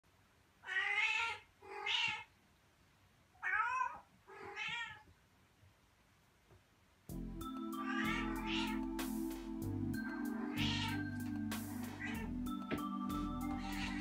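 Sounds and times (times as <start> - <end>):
cat meowing: 0.6 - 2.3, 3.4 - 5.1, 7.8 - 8.8, 10.4 - 11.0.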